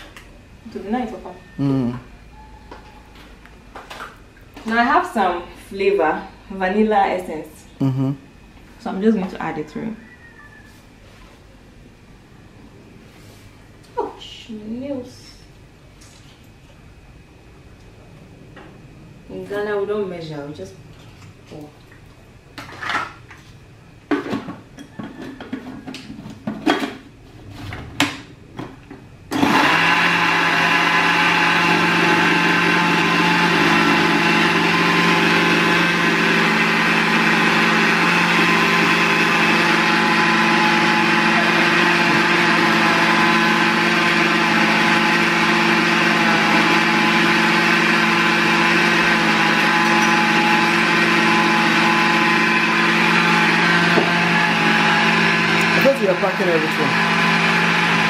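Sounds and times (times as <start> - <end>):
blender running: 29.3 - 58.0.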